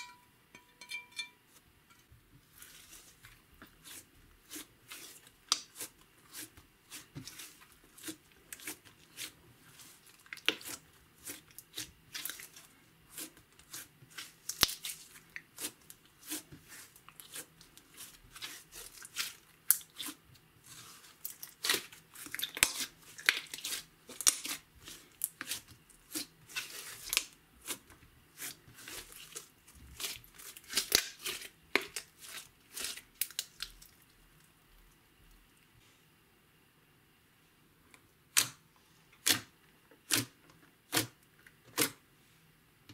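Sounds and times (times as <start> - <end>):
slime crackling and popping: 10.2 - 16.4, 21.2 - 27.3, 28.4 - 33.9.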